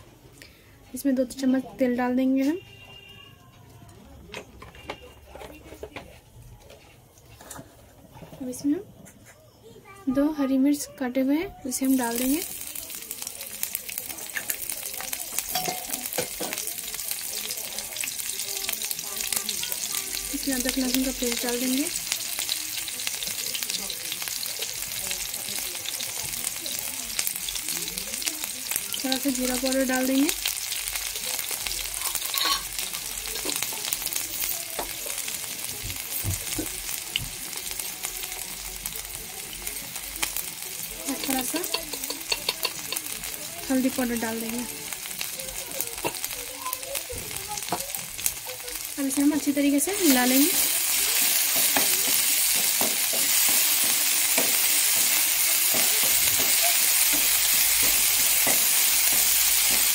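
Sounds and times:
hot oil sizzling in a frying pan: 10.1s - 59.9s
spatula scraping pan: 32.0s - 33.6s.

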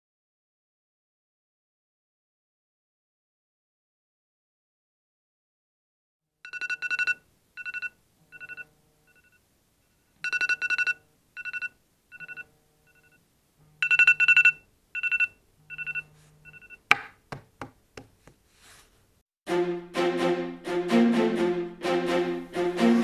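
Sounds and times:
phone alarm two-tone beeps: 13.8s - 16.8s.

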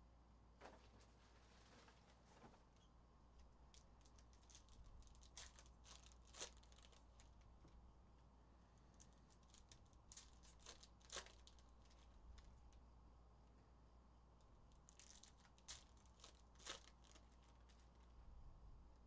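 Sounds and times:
foil wrappers crinkling: 3.7s - 7.5s, 8.9s - 12.8s, 14.7s - 18.2s.

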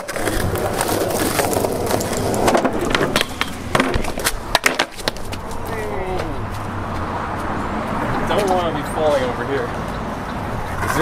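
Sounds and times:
skateboard clacks: 0.0s - 6.3s, 10.7s - 11.0s
skateboard wheels rumbling on asphalt: 0.0s - 9.2s, 10.4s - 11.0s.

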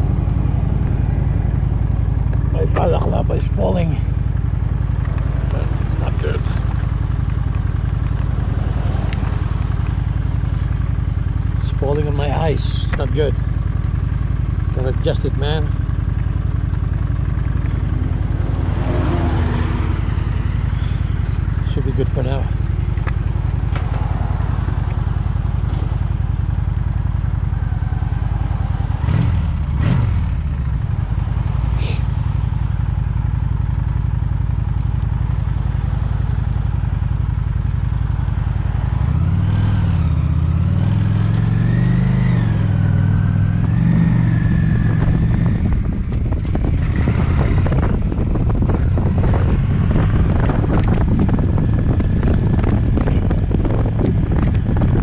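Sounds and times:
motorcycle engine running: 0.0s - 55.0s
wind rush: 44.9s - 55.0s.

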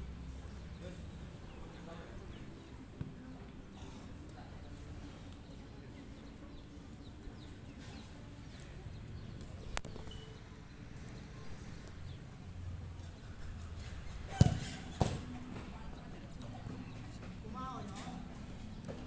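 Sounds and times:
outdoor background noise: 0.0s - 19.0s
ball kicked: 14.3s - 15.3s.

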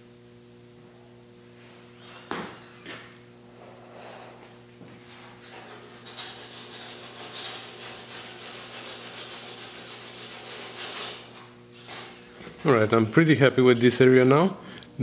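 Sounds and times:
hand sanding metal: 5.5s - 12.2s.

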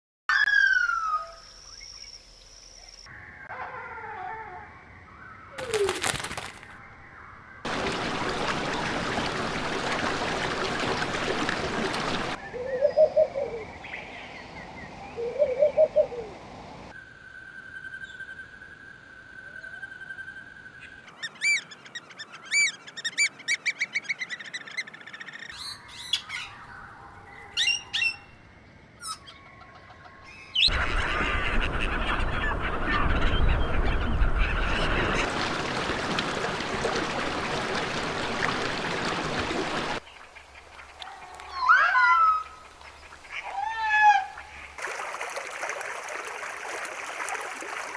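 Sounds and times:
outdoor noise with bird calls: 0.3s - 7.8s, 12.3s - 35.3s, 39.9s - 44.8s.

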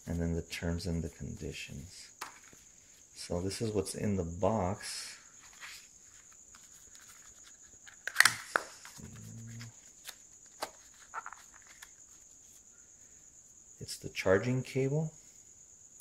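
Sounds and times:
paper packaging rustling: 5.4s - 12.4s.

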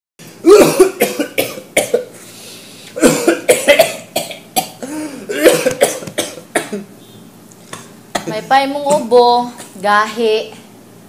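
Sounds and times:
man coughing: 0.4s - 2.2s, 3.0s - 6.9s.

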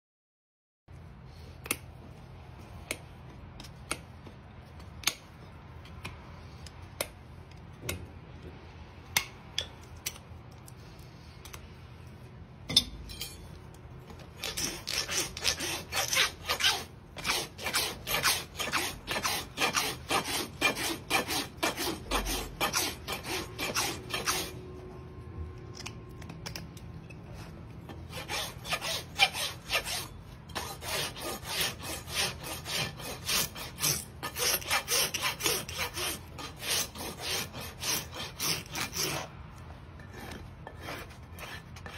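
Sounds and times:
rasp filing hoof: 14.2s - 24.6s, 27.9s - 39.3s, 40.0s - 41.9s.

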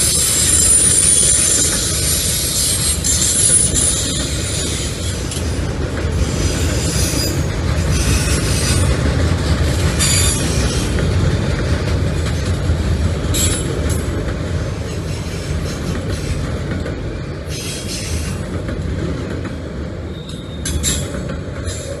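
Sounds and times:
high wheel squeals: 0.0s - 5.4s, 20.1s - 21.1s
train wheels rumbling on rail: 0.0s - 22.0s.

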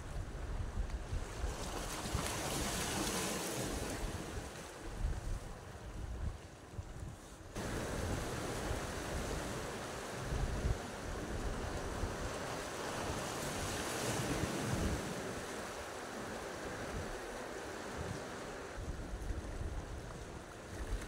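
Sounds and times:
wind buffeting microphone: 3.8s - 13.7s.

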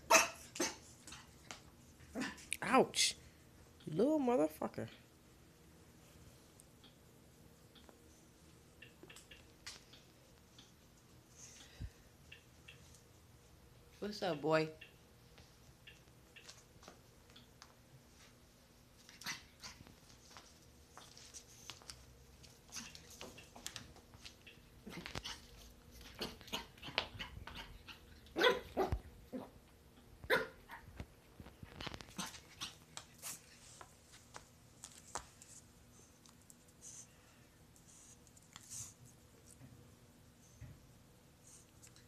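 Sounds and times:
puppy barking and yipping: 0.0s - 0.9s, 26.2s - 29.4s, 30.3s - 30.8s.

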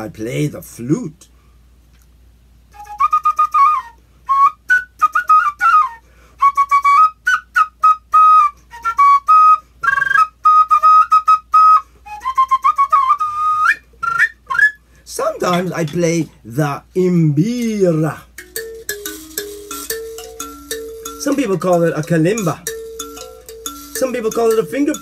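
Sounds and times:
wooden flute melody: 2.7s - 14.8s, 18.4s - 25.0s.

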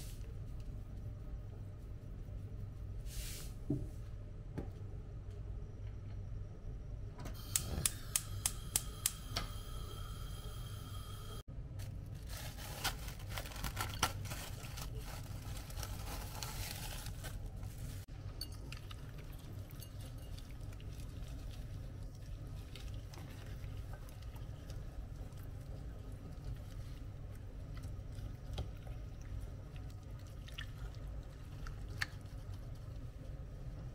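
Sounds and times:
gas hob igniter clicks: 7.4s - 9.6s
crackly rustling: 11.8s - 18.1s.

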